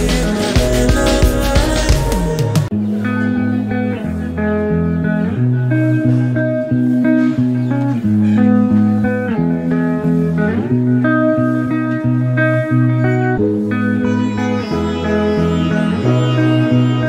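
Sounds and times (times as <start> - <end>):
guitar instrumental music: 0.0 - 17.0.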